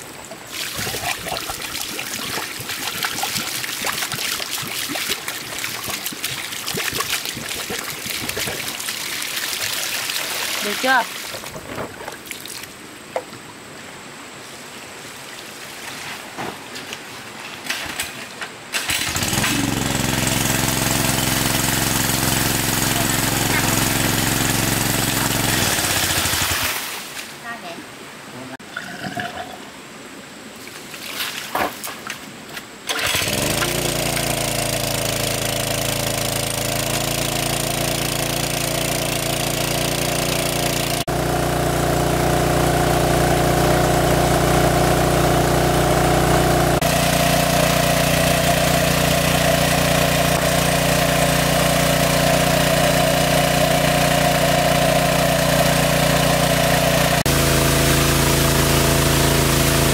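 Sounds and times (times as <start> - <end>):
engine-driven water pump running: 0.4 - 11.6, 18.8 - 26.8, 32.9 - 59.9.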